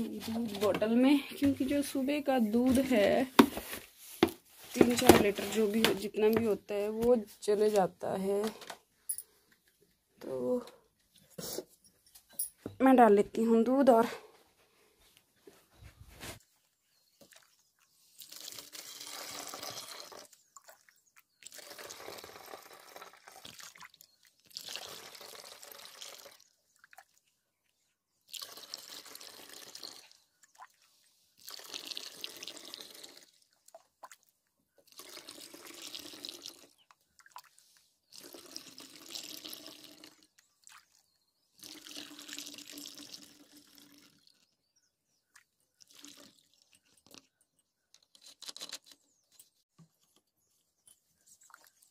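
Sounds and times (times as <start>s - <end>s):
milk pouring into a bottle: 18.2s - 20.8s, 21.4s - 27.1s, 28.3s - 30.2s, 31.4s - 33.4s, 34.8s - 36.8s, 38.0s - 41.0s, 41.6s - 44.5s, 45.8s - 47.2s.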